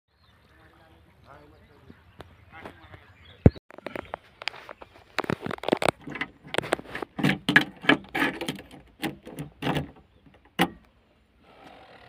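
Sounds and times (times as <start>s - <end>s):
knocks and clatter of handling: 3.7s - 10.9s.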